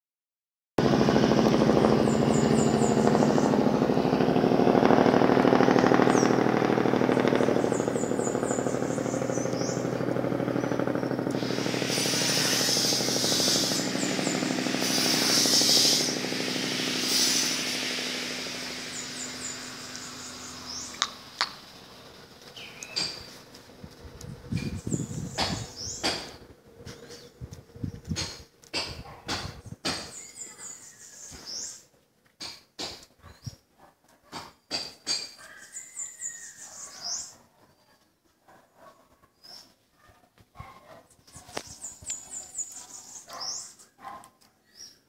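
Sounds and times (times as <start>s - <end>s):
motor running with pulsing beat: 0.8s - 20.8s
bright hiss: 11.3s - 22.0s.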